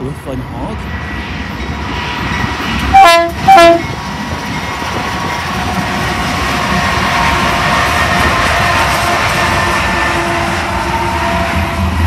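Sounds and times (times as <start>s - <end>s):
train rumble and wheel noise: 0.0s - 12.0s
locomotive air horn blasts: 2.9s - 3.8s, 8.6s - 12.0s.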